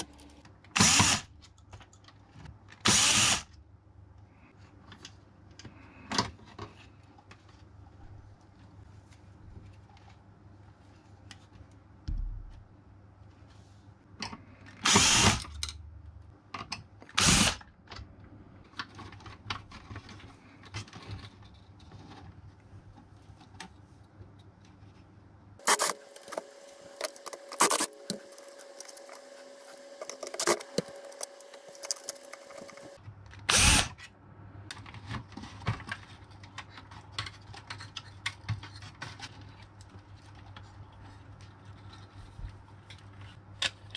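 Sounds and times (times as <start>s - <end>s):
steady hum with sharp clicks: 25.6s - 33.9s.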